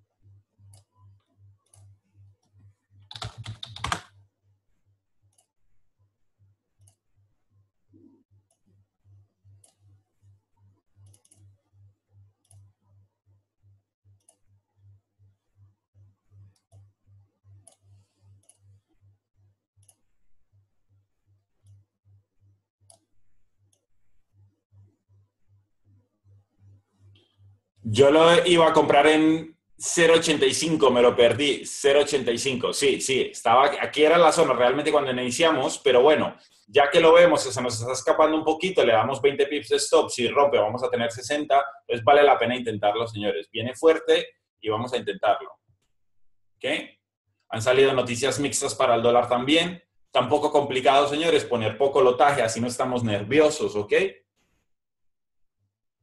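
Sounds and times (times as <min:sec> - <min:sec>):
keyboard typing: 0:00.6 - 0:04.2.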